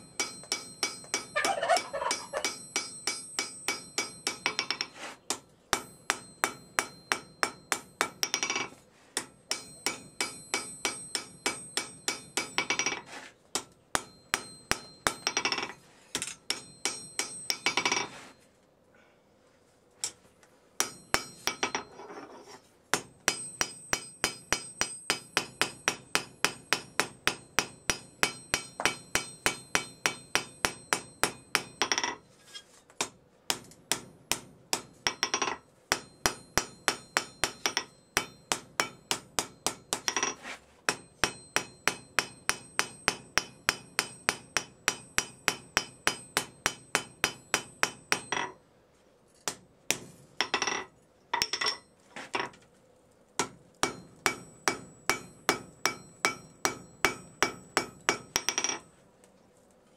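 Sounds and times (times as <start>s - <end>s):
anvil ringing: 0.0s - 4.9s, 5.8s - 8.7s, 9.5s - 13.1s, 14.0s - 15.7s, 16.4s - 18.1s, 20.8s - 22.0s, 23.2s - 32.2s, 34.8s - 48.6s, 53.8s - 58.9s
hammer striking hot steel: 0.0s - 18.1s, 20.8s - 22.0s, 22.9s - 32.3s, 33.0s - 48.6s, 49.4s - 52.5s, 53.4s - 58.9s.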